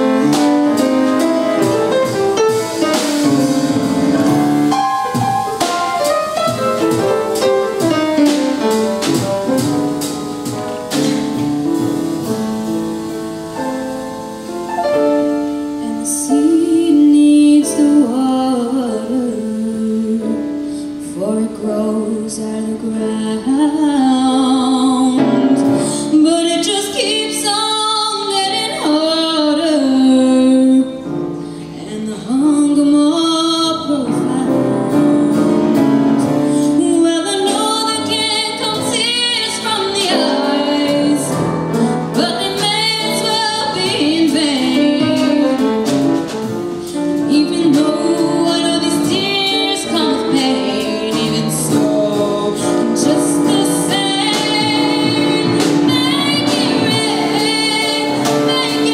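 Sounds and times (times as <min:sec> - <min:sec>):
musical accompaniment: 0:00.0 - 0:58.9
girl singing ballad: 0:14.9 - 0:58.9.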